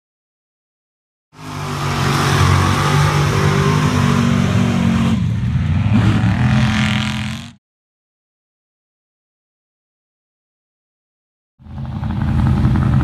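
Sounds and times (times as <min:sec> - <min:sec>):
truck engine revving: 0:01.4 - 0:07.6.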